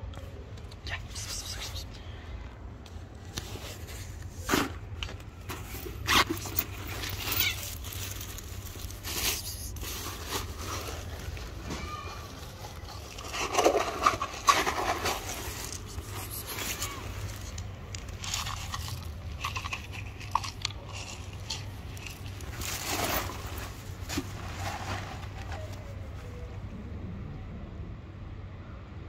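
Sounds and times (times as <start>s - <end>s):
plastic bag crinkling: 5.9s - 26.0s
steady low rumble: 25.8s - 29.0s.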